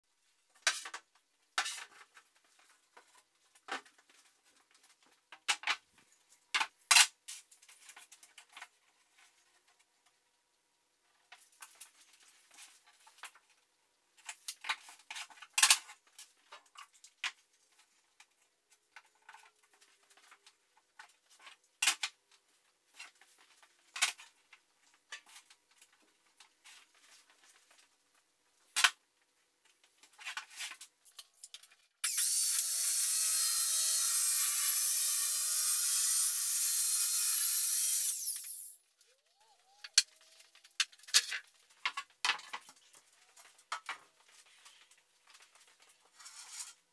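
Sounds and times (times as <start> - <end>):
circular saw cutting plywood: 32.0 - 40.6.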